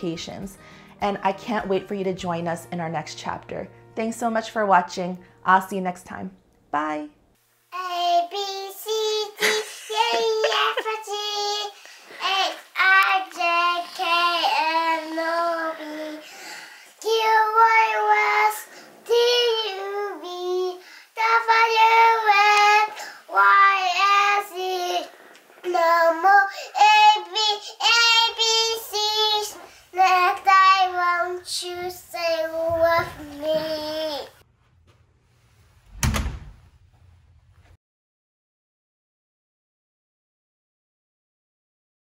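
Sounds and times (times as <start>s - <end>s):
child singing: 7.7s - 34.4s.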